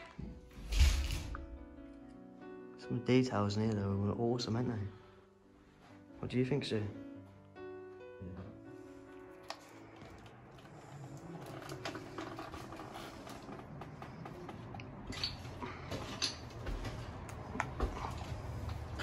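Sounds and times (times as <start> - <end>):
sharp knocks and creaks: 10.0 - 19.0.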